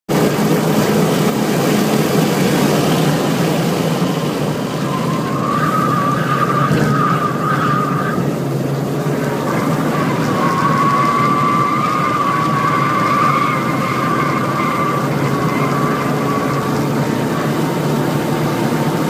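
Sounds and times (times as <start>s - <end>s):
car engine running hard: 0.1s - 19.0s
road and wind noise: 0.1s - 19.0s
tyres squealing: 9.5s - 17.0s.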